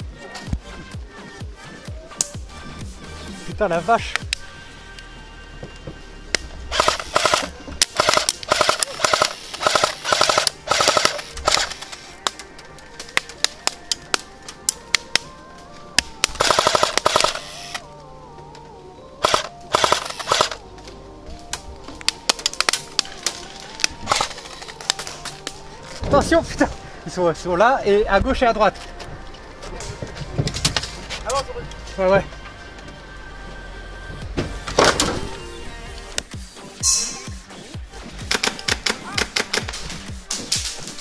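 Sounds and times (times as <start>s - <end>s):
airsoft guns firing bursts: 6.7s - 11.9s, 16.2s - 17.5s, 19.2s - 20.6s.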